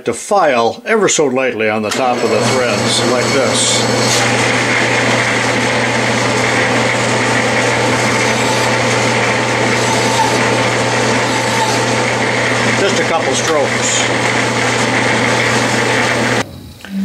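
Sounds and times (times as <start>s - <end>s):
metal lathe running: 1.9s - 16.4s
hand file rubbing metal threads: 3.3s - 16.4s.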